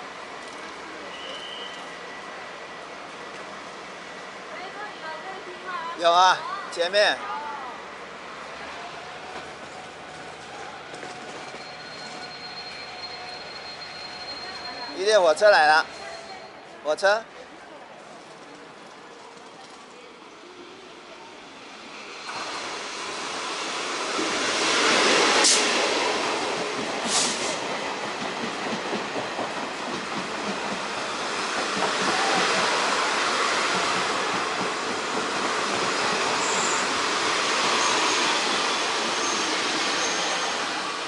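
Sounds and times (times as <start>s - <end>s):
train rumbling: 7.4s - 16.8s, 21.4s - 41.0s
high wheel squeal: 11.1s - 15.0s, 36.0s - 37.1s, 37.7s - 40.9s.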